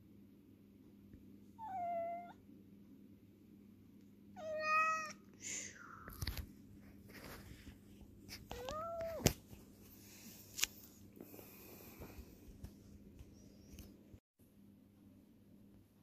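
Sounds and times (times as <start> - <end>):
cat meowing: 1.6 - 2.4, 4.4 - 5.2, 8.5 - 9.2.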